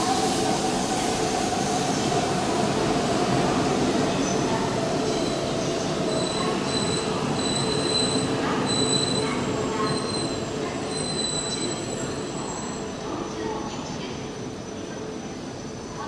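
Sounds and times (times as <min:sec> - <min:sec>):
high wheel squeals: 0:06.2 - 0:12.8.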